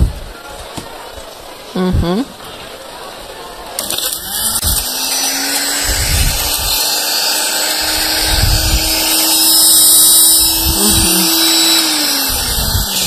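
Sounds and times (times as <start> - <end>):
blender motor running: 3.8 - 13.0.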